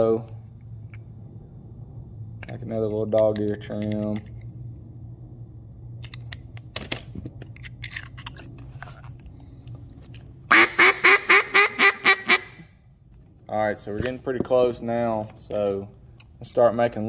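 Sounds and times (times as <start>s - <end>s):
duck call quacks: 10.5s - 12.6s.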